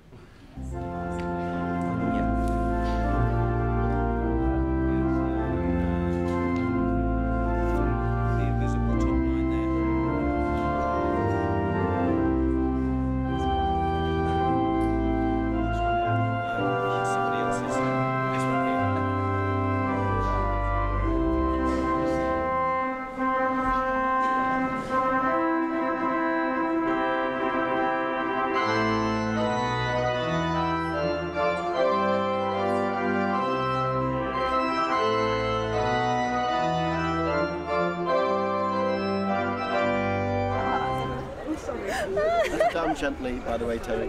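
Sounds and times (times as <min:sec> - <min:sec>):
pipe organ chords: 0:00.0 - 0:41.4.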